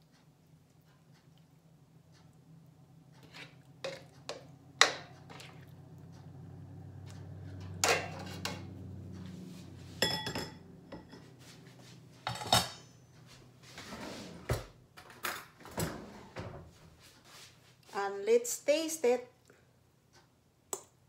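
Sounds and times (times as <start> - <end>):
steady low hum: 0.0 - 14.9
spatula scraping in a wok: 3.2 - 5.6, 7.2 - 10.3
china plate clinking: 10.0 - 11.3.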